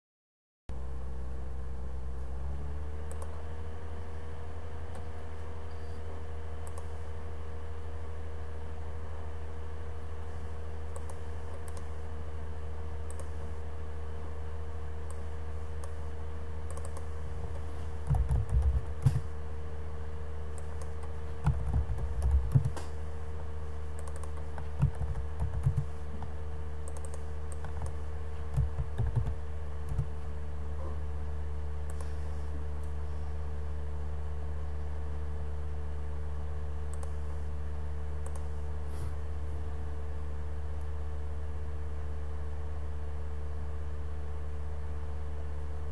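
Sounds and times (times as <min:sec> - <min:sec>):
steady low hum: 0:00.7 - 0:45.9
typing on computer keyboard: 0:18.0 - 0:19.3, 0:20.6 - 0:22.9, 0:24.0 - 0:26.3, 0:26.9 - 0:30.1.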